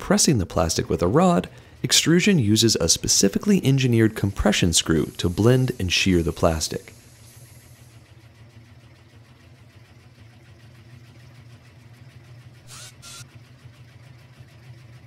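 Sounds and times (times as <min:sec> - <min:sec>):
low machine hum: 0:00.0 - 0:15.0
short hissing bursts: 0:02.8 - 0:08.1.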